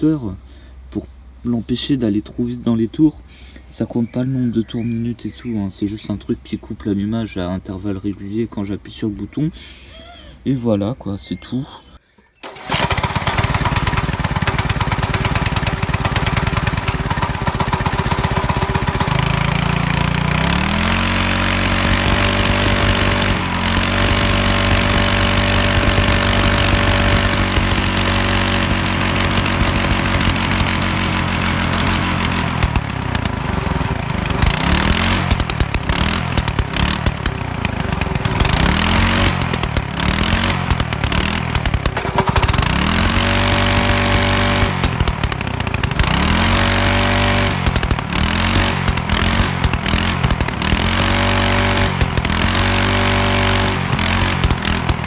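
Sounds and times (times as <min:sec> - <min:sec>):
small engine revving: 0:12.4 - 0:55.0
exhaust pops: 0:12.5 - 0:55.0.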